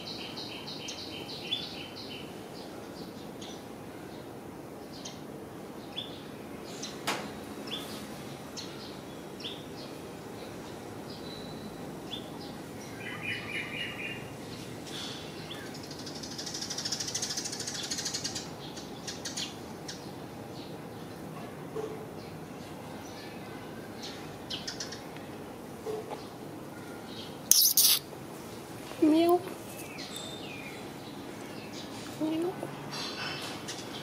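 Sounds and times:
small birds chirping: 0:00.0 - 0:07.1, 0:07.7 - 0:21.3, 0:22.2 - 0:34.0
brief hissing buzz: 0:27.5 - 0:28.0
rapid bird trill: 0:27.5 - 0:28.1.

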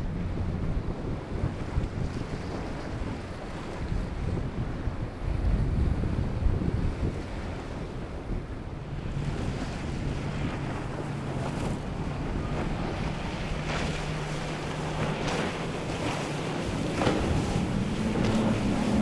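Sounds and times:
boat engine drone: 0:00.0 - 0:19.0
wind buffeting microphone: 0:00.0 - 0:19.0
water splashing: 0:08.8 - 0:19.0.

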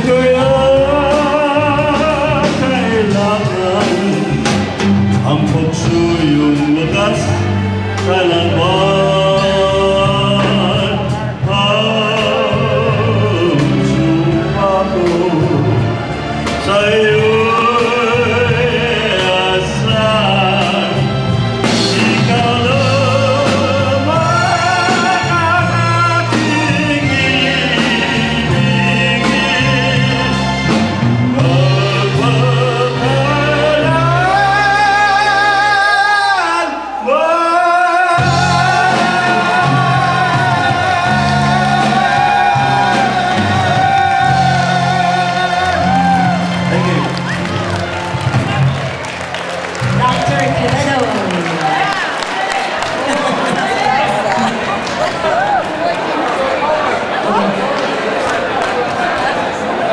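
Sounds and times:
man singing into microphone: 0:00.0 - 0:47.3
keyboard: 0:00.0 - 0:59.9
live band playing: 0:00.0 - 0:59.9.

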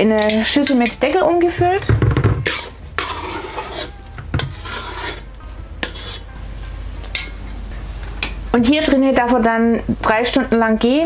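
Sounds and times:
dough scraper scraping bowl: 0:01.7 - 0:06.3.

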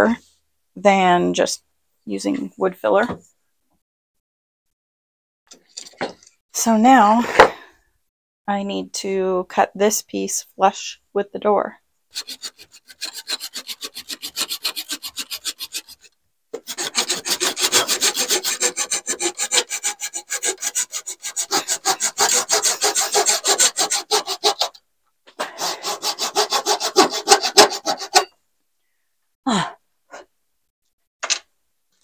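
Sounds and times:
hand saw cutting wood: 0:12.1 - 0:28.3.

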